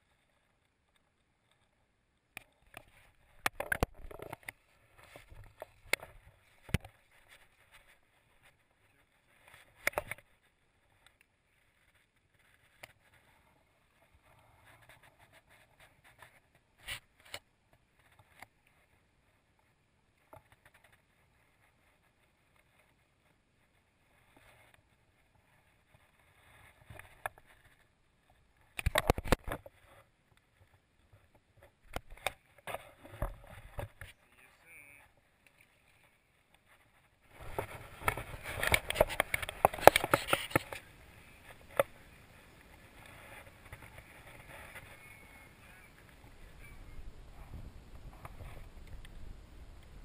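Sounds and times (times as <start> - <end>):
microphone handling noise: 37.3 - 40.9.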